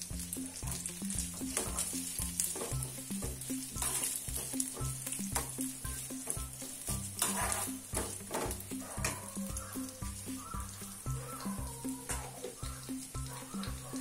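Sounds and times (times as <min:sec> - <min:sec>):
background music: 0:00.0 - 0:14.0
coconut sizzling in a pan: 0:00.0 - 0:14.0
steel spoon scraping a pan: 0:00.5 - 0:09.8.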